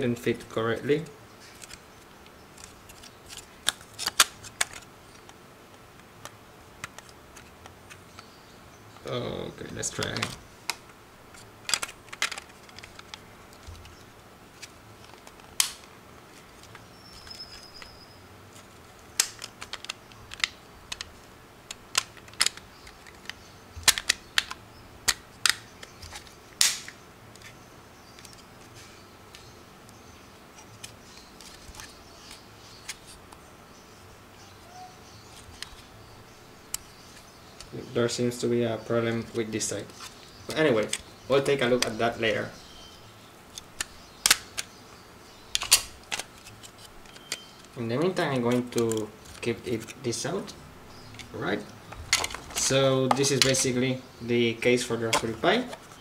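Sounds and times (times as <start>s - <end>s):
plastic case clicks and snaps: 10.0s - 13.9s, 19.2s - 21.1s, 21.7s - 27.0s, 43.6s - 44.8s, 45.6s - 50.0s.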